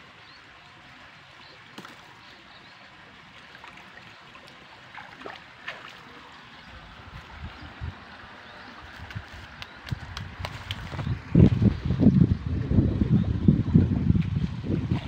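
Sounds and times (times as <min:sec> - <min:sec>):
water trickling: 0:00.0 - 0:09.7.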